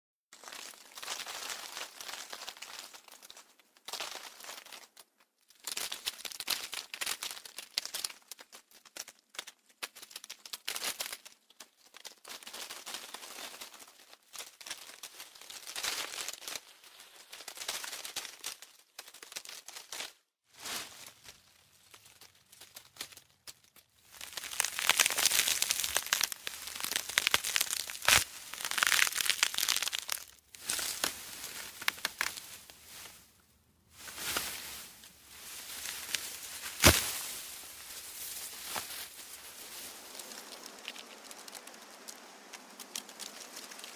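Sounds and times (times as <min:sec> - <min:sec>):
leaves rustling: 0:00.4 - 0:04.7, 0:20.5 - 0:43.9.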